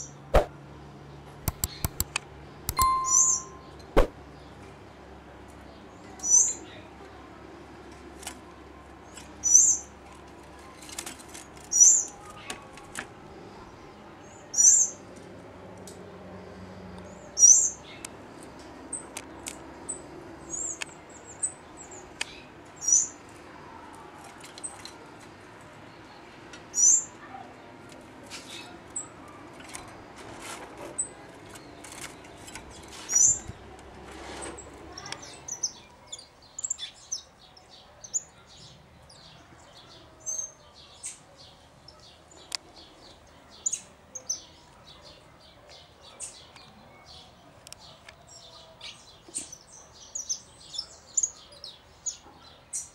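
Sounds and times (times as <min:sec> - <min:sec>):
finch chirping: 0:02.7 - 0:04.1.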